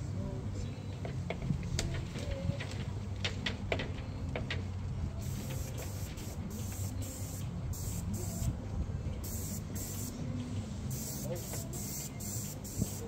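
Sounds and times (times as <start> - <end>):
low mechanical hum: 0.0 - 13.0
paint sprayer hissing bursts: 5.2 - 8.5, 9.2 - 10.2, 10.9 - 13.0.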